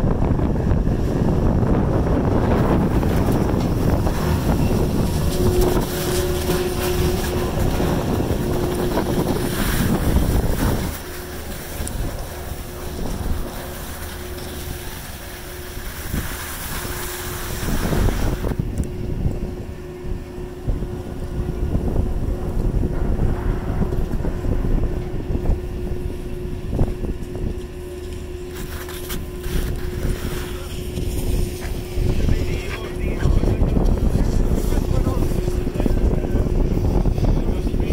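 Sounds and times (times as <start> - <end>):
chairlift mechanical hum: 0.0 - 37.9
wind noise on microphone: 0.0 - 37.9.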